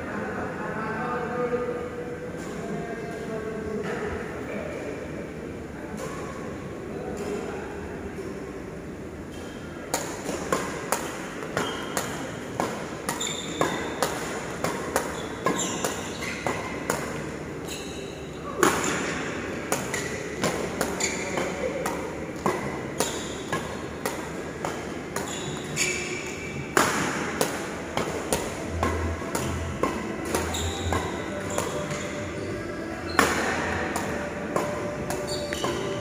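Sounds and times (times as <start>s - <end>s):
rackets striking shuttlecocks: 9.4s - 17.3s, 18.6s - 32.2s, 33.1s - 36.0s
shoes squeaking on floor: 11.5s - 12.2s, 13.1s - 14.0s, 15.1s - 16.7s, 17.6s - 18.3s, 21.0s - 21.6s, 23.0s - 23.5s, 25.2s - 26.6s, 30.4s - 33.3s, 35.2s - 36.0s.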